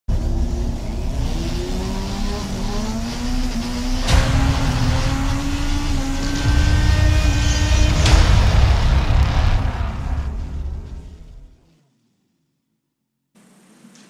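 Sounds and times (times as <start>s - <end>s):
engine revving: 0.1s - 11.7s
sharp hit: 3.7s - 11.6s.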